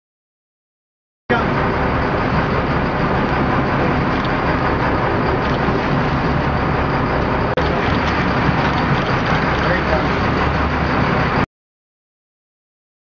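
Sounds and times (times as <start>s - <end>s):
boat engine running: 1.3s - 11.5s.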